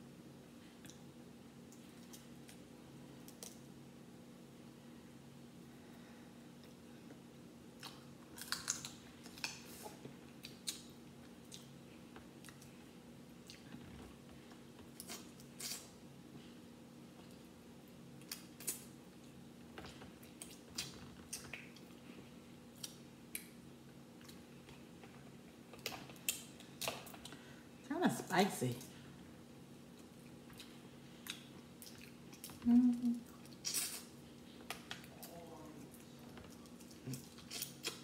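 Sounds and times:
faint steady hum: 0:00.0 - 0:38.0
wet chewing sounds: 0:29.9 - 0:32.6.

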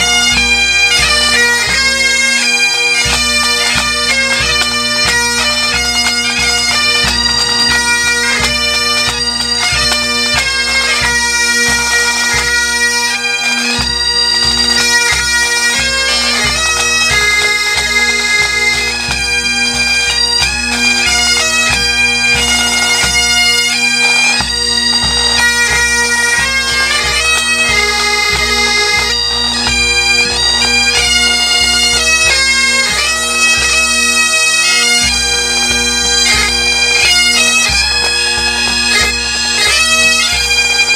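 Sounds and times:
bagpipes playing a tune: 0:00.0 - 0:40.9
drums beating: 0:35.0 - 0:40.9.

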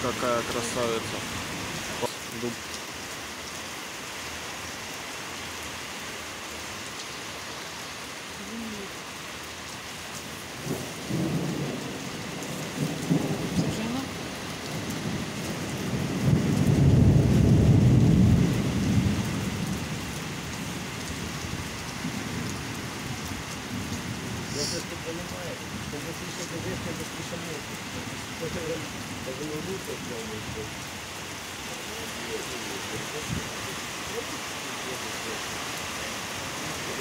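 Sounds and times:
steady rain falling: 0:00.0 - 0:37.0
thunder rumbling: 0:10.6 - 0:25.1.

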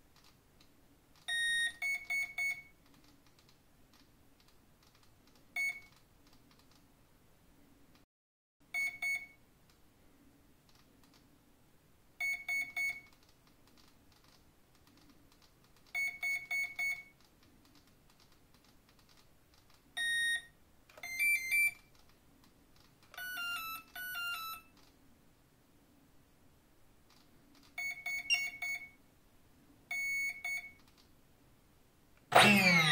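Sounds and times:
motor programming beeps: 0:27.9 - 0:28.9, 0:32.3 - 0:32.9
changing electronic tones: 0:28.0 - 0:28.9, 0:32.3 - 0:32.9.

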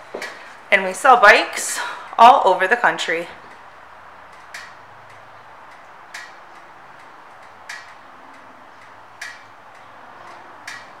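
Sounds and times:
sharp ticks: 0:03.5 - 0:11.0.

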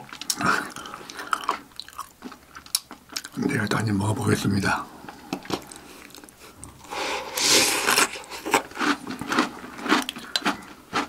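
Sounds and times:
chewing crunchy cereal: 0:00.0 - 0:03.8, 0:07.3 - 0:11.0.

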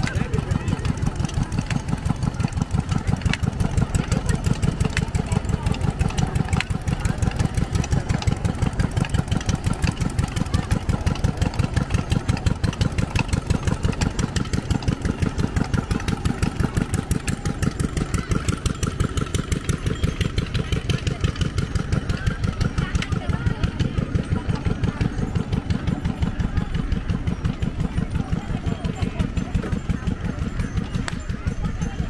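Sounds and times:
small engine running steadily: 0:00.0 - 0:32.0.

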